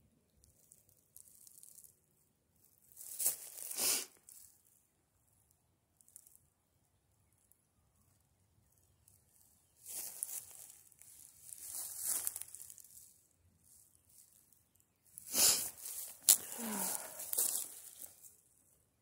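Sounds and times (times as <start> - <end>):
dry leaves rustling: 3.0 - 3.8, 9.8 - 14.5, 15.1 - 18.4.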